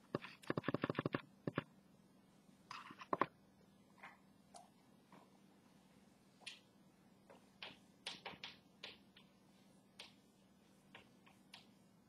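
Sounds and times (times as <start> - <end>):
faint steady hum: 0.0 - 12.0
chalk tapping and scraping on blackboard: 0.1 - 1.7, 7.3 - 11.9.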